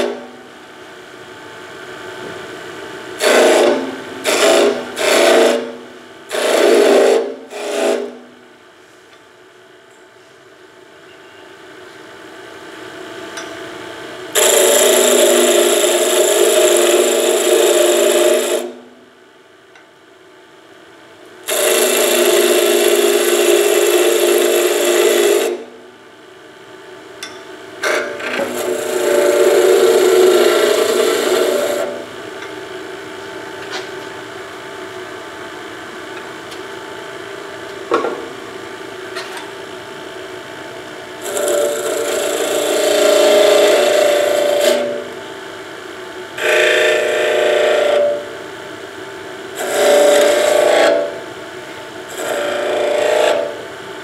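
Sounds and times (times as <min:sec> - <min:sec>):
wood lathe humming: 0:03.2 - 0:08.2, 0:14.3 - 0:18.8, 0:21.4 - 0:25.6, 0:27.8 - 0:32.2, 0:41.2 - 0:45.2, 0:46.4 - 0:48.4, 0:49.5 - 0:51.4, 0:52.0 - 0:53.7
chisel cutting spinning wood: 0:03.2 - 0:08.3, 0:14.3 - 0:18.8, 0:21.4 - 0:25.7, 0:27.8 - 0:32.1, 0:41.2 - 0:45.2, 0:46.4 - 0:48.3, 0:49.5 - 0:51.2, 0:52.1 - 0:53.7.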